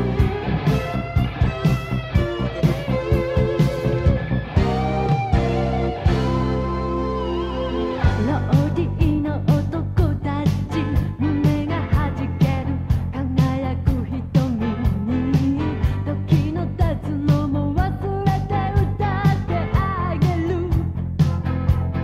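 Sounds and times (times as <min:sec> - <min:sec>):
woman singing pop-rock song: 0:08.0 - 0:21.1.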